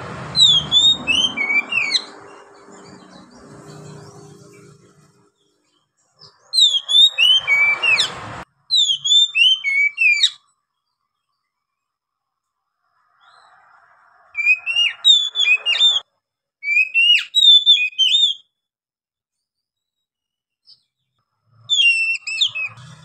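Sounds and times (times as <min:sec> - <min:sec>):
bird singing whistled notes: 0:00.3 - 0:04.7, 0:05.4 - 0:11.0, 0:14.3 - 0:18.5, 0:21.6 - 0:23.0.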